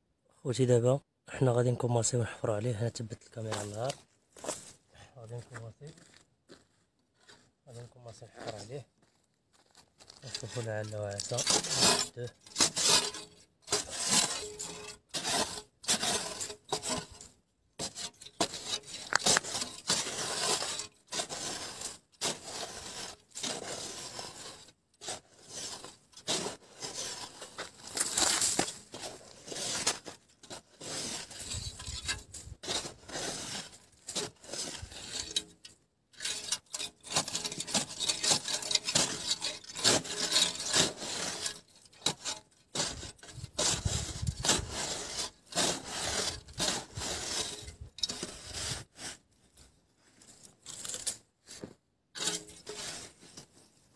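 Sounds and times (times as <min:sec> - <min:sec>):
shovel scraping sandy soil: 0:10.2 - 0:49.4, 0:50.4 - 0:53.7.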